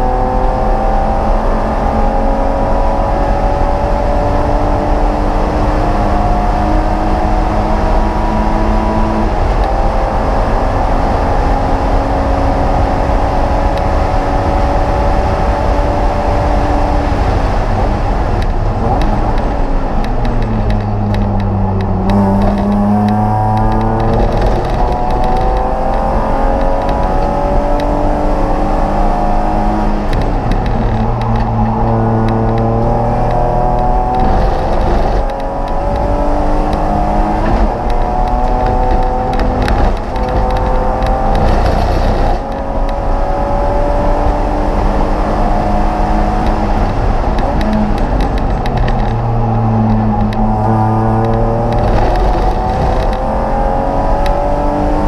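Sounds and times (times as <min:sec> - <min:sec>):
race car engine revving through gears: 0:00.0 - 0:55.0.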